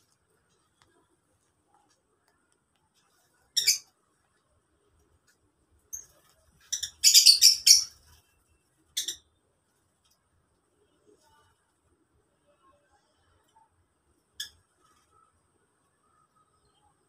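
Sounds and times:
lovebirds chirping: 0:06.7 - 0:07.9.

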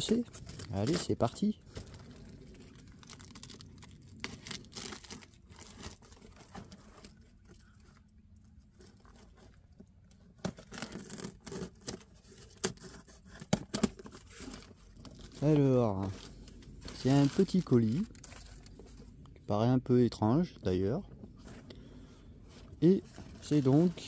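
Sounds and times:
packing tape tearing: 0:02.6 - 0:07.2, 0:10.4 - 0:13.0
cardboard scraping and rustling: 0:04.2 - 0:08.0, 0:08.6 - 0:19.1, 0:22.5 - 0:24.0.

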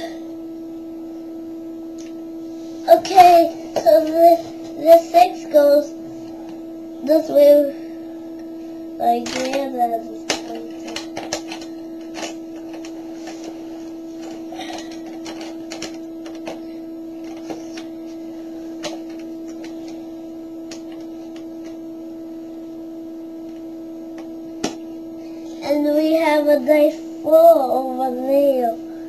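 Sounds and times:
plastic pieces clicking: 0:10.3 - 0:12.9.

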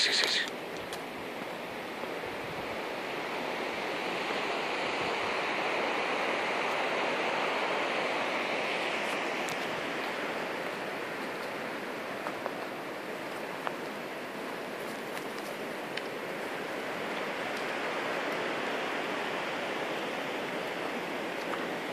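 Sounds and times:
flowing water rushing: 0:00.0 - 0:21.9.

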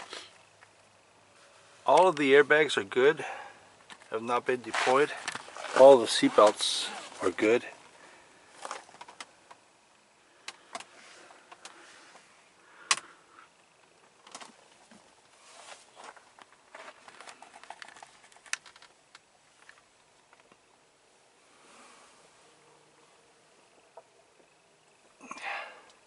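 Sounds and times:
clicks taps and rustles in car cabin: 0:16.0 - 0:20.7.

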